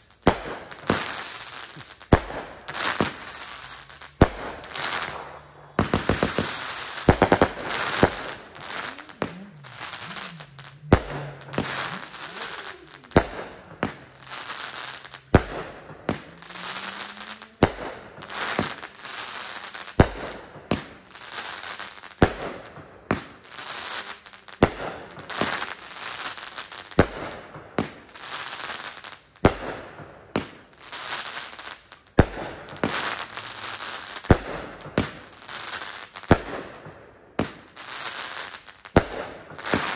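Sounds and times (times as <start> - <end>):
firework shots banging: 0.0 - 21.1, 26.9 - 28.1, 36.3 - 37.7, 38.9 - 39.9
firework crackling: 0.0 - 39.9.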